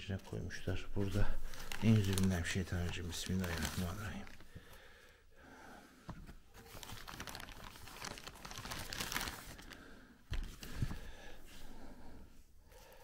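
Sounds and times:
plastic bag crinkling: 0.2 - 4.6, 6.5 - 10.9.

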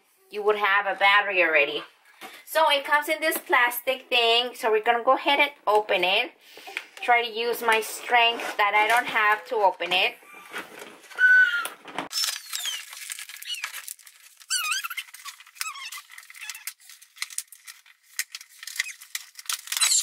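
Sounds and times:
plastic squeaking as it bends: 10.2 - 16.8, 18.7 - 20.0
plastic packaging crackling and clicking: 10.5 - 20.0.

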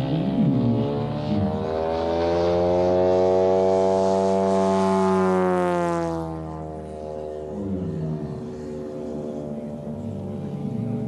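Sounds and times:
model plane engine and propeller: 0.0 - 11.0.

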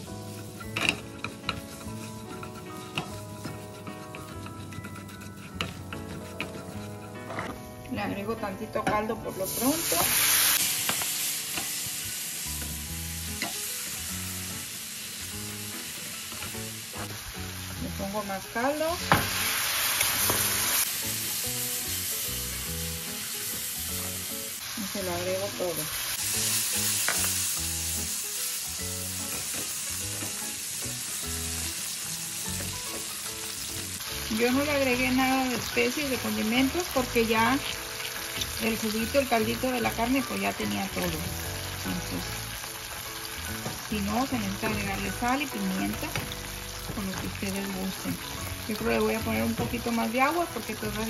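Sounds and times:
broth sizzling in a skillet: 0.0 - 51.0
spatula scraping a pan: 0.2 - 7.7.

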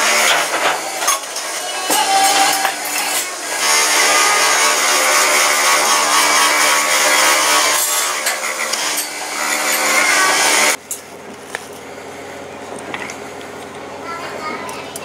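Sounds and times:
bench grinder grinding metal: 0.0 - 10.8
grinder motor running: 0.0 - 10.8.

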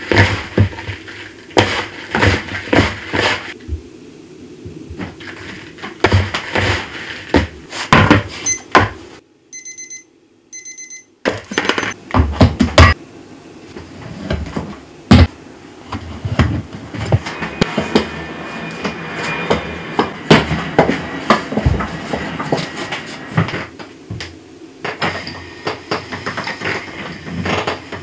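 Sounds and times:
kitchen timer beeping: 8.4 - 8.7, 9.5 - 12.0.

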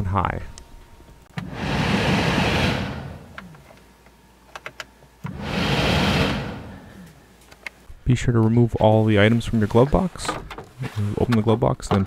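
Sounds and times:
heater blower fan blowing: 0.8 - 8.0.

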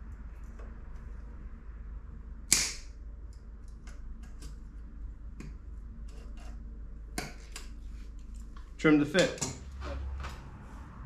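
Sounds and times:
sharp metallic snap: 2.5 - 3.0.

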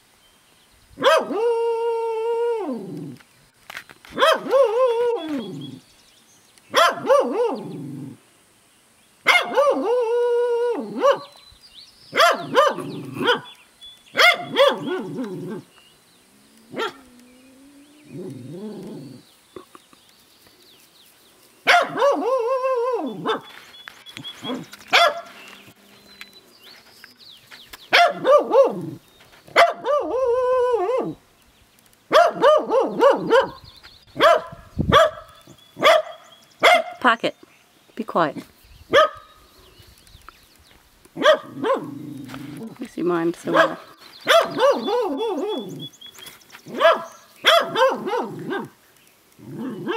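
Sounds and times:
dog howling barks: 1.0 - 3.2, 4.2 - 5.8, 6.7 - 8.2, 9.2 - 11.4, 12.1 - 13.6, 14.2 - 15.7, 16.6 - 19.2, 21.6 - 23.5, 24.4 - 25.9, 27.9 - 31.2, 32.1 - 33.6, 34.2 - 37.0, 41.2 - 42.7, 43.5 - 45.9, 46.7 - 48.8, 49.4 - 49.9.

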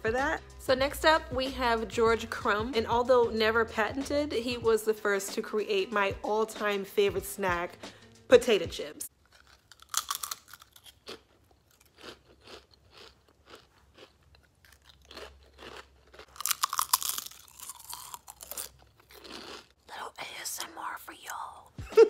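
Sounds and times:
potato chips crunching: 9.1 - 19.8.

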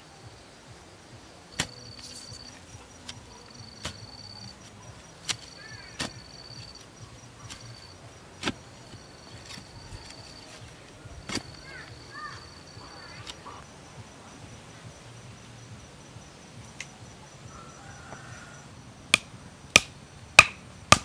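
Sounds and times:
insects trilling: 0.0 - 21.0
digging bar striking soil: 1.5 - 13.6.

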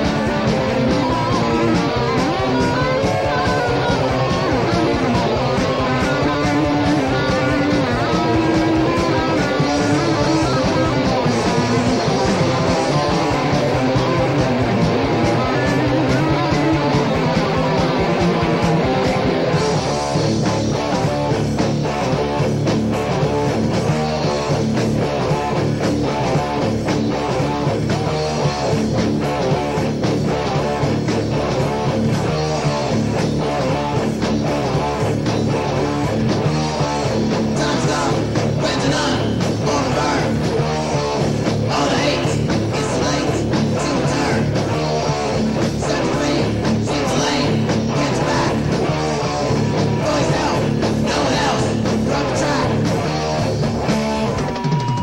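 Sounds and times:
guitar-driven rock band playing: 0.0 - 55.0.

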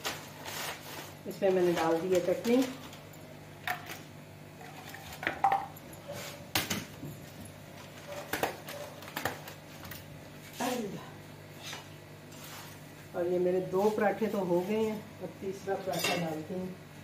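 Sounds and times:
dishes and utensils clinking: 15.9 - 16.4.

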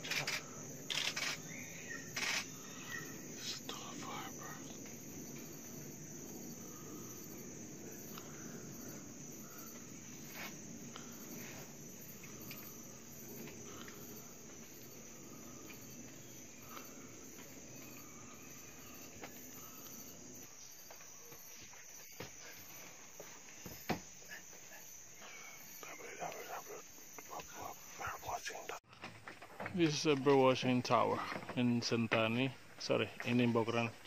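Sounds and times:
scattered clicks: 0.0 - 1.4
insect trilling drone: 0.0 - 29.1.

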